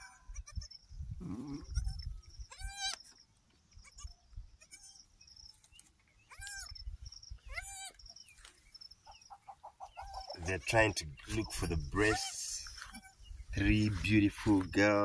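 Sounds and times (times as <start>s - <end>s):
goats bleating: 7.5s - 8.0s, 10.1s - 15.0s.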